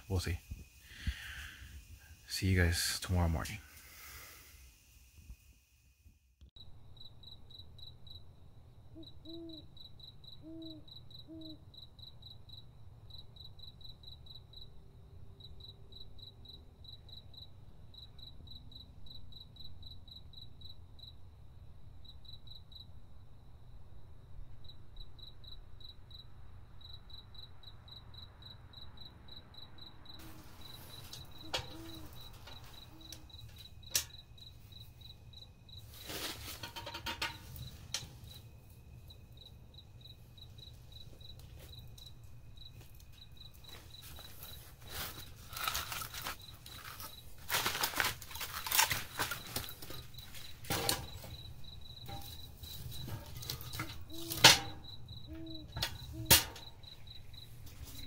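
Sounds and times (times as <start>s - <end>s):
cricket chirping: 0.0s - 58.0s
rustling: 35.8s - 38.4s, 42.8s - 54.7s.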